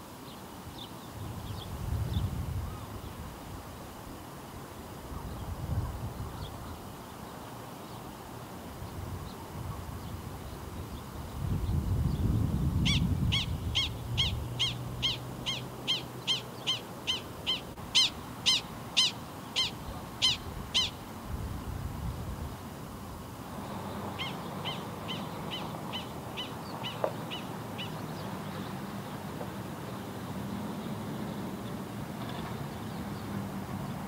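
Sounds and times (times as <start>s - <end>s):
prairie dog barking calls: 12.9s - 21.0s, 24.2s - 28.0s.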